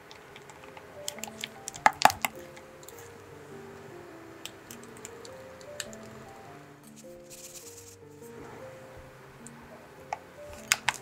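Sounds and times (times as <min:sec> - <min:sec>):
soft background music: 0:00.0 - 0:11.0
scattered clicks: 0:00.1 - 0:03.1, 0:04.4 - 0:06.1.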